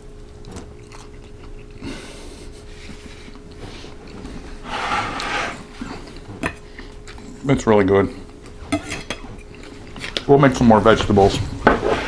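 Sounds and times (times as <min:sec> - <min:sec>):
man chewing food: 0:00.0 - 0:07.4, 0:08.1 - 0:10.2.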